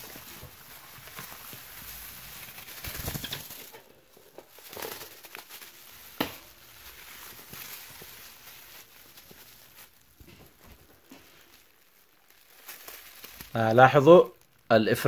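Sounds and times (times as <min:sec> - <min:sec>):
plastic bag rustling: 0:00.0 - 0:14.9
wire birdcage rattling: 0:02.4 - 0:03.9.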